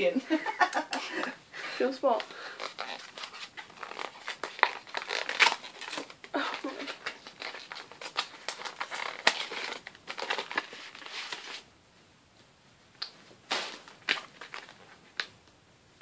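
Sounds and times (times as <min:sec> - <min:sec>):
paper envelope crinkling: 0:02.2 - 0:11.6, 0:13.5 - 0:15.3.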